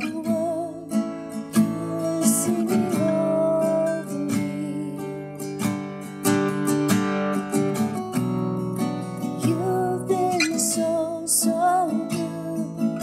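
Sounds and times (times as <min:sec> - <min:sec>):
woman singing slow worship song: 0:00.0 - 0:05.4, 0:09.4 - 0:13.0
acoustic guitar strumming: 0:00.0 - 0:13.0.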